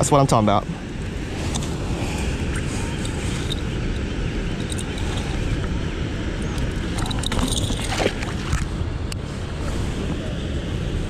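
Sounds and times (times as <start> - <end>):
wind rumbling on microphone: 0.0 - 11.0
small clinks: 3.0 - 5.5, 6.4 - 8.3.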